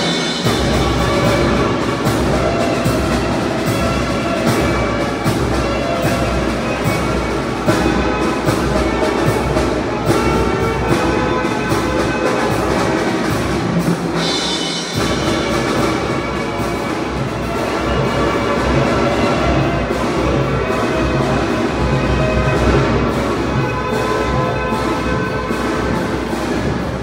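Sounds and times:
brass instruments: 0:00.0 - 0:27.0
drums beating: 0:00.0 - 0:27.0.

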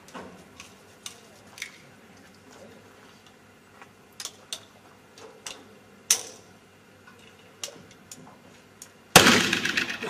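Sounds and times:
pistol shot: 0:09.2 - 0:09.9.

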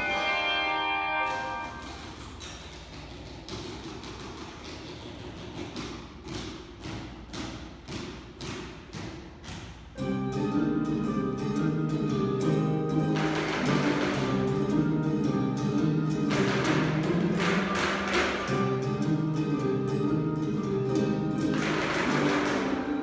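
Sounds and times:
handbell ensemble playing swing: 0:00.0 - 0:02.4, 0:10.0 - 0:23.0
short percussive strokes: 0:12.4 - 0:19.6, 0:20.5 - 0:23.0.

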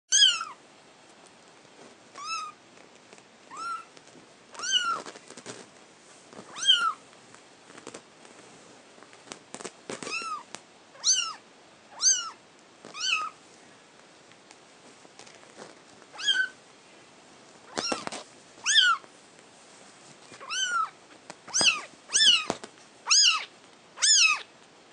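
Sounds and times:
faint rustles and knocks: 0:01.1 - 0:10.7, 0:12.7 - 0:16.3, 0:17.5 - 0:22.9
kitten mewing: 0:03.5 - 0:03.9.

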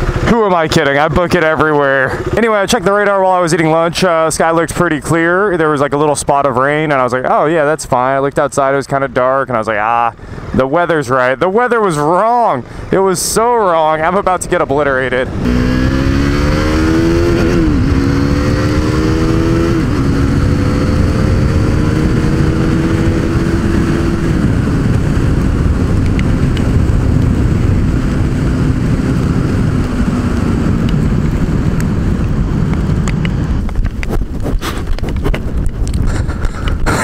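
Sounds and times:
motorcycle engine accelerating: 0:00.0 - 0:04.3, 0:14.1 - 0:37.0
wind rushing over microphone: 0:00.0 - 0:37.0.

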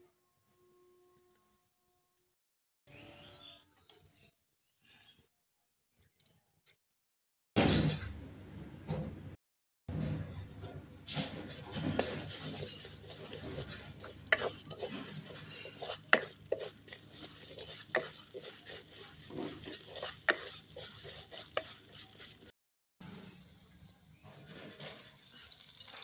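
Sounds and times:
spatula stirring frying lentils: 0:11.1 - 0:22.5, 0:24.4 - 0:26.0
spatula knocking clay pot: 0:12.0 - 0:22.5.

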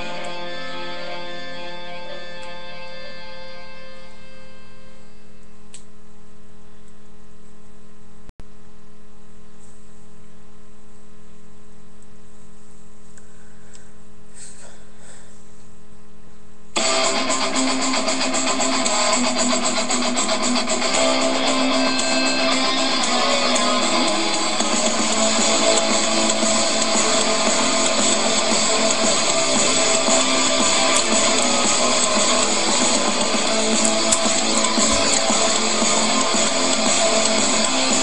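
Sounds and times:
loud guitar-driven song: 0:00.0 - 0:04.3, 0:16.8 - 0:38.0.

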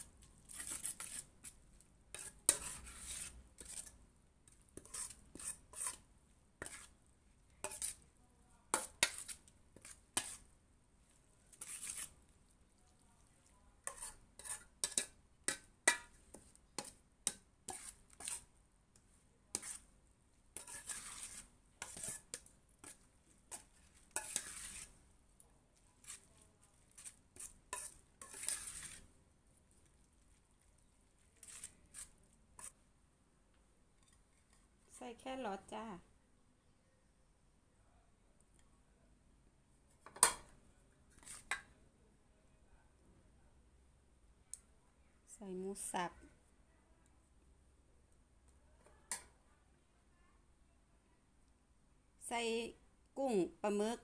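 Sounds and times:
metal spoon scraping metal bowl: 0:00.0 - 0:07.0, 0:07.6 - 0:08.0, 0:08.7 - 0:10.5, 0:11.5 - 0:12.3, 0:13.8 - 0:18.5, 0:19.5 - 0:19.9, 0:20.6 - 0:25.0, 0:26.0 - 0:29.1, 0:31.3 - 0:32.8, 0:41.1 - 0:41.6.

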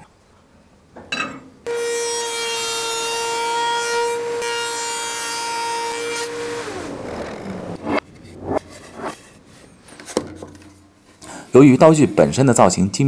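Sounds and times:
cutter cutting board: 0:01.7 - 0:09.2
spindle moulder whining: 0:01.7 - 0:09.8.

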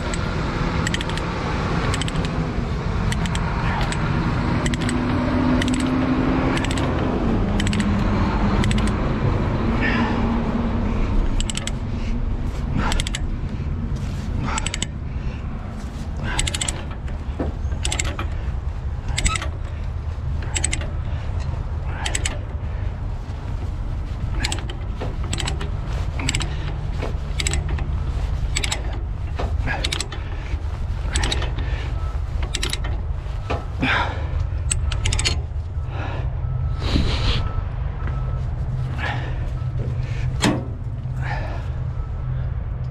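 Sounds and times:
ratchet chain binder clicking: 0:00.0 - 0:02.4, 0:03.0 - 0:09.0, 0:11.1 - 0:11.9, 0:12.6 - 0:13.5, 0:14.4 - 0:15.1, 0:15.9 - 0:22.7, 0:23.4 - 0:33.7, 0:34.4 - 0:35.7
steady low hum: 0:00.0 - 0:42.9.

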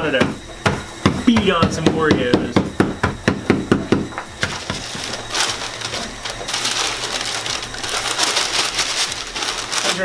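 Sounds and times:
cookies crunching: 0:04.3 - 0:10.0
paper crinkling: 0:04.4 - 0:10.0.

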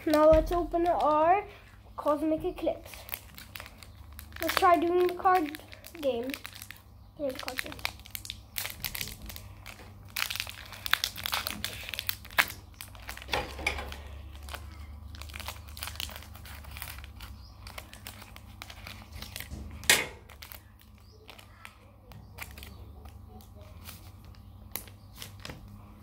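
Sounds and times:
foil wrapper crinkling and tearing: 0:00.0 - 0:26.0.

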